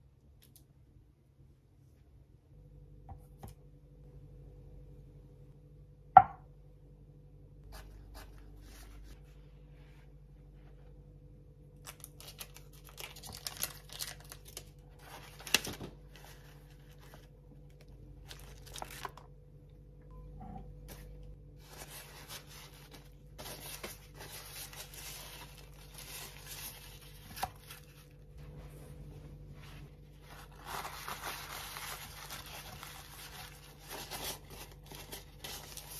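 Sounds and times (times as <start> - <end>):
paper towel rustling and crinkling: 7.7 - 11.1, 11.8 - 19.2, 20.8 - 35.9.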